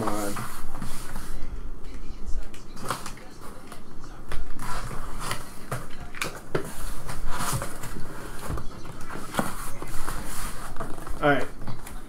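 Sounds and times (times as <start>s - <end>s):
cardboard scraping and rustling: 0.0s - 1.4s, 4.5s - 12.0s.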